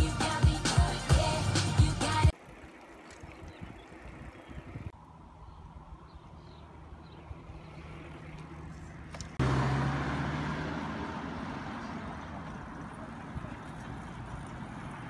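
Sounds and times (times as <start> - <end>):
quiet street sound: 0.0 - 15.0
car passing: 5.0 - 15.0.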